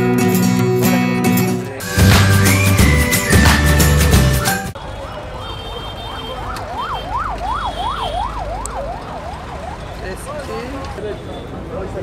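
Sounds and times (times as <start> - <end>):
intro music: 0.0 - 4.8
street noise: 0.0 - 12.0.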